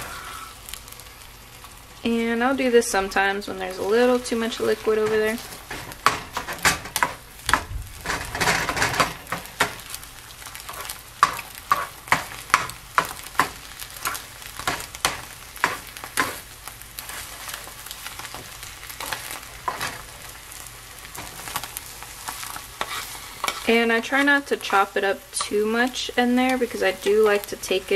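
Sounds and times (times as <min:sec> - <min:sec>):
eggs sizzling in a frying pan: 0:00.0 - 0:27.9
spatula scraping and tapping pan: 0:03.1 - 0:20.2, 0:21.1 - 0:25.7.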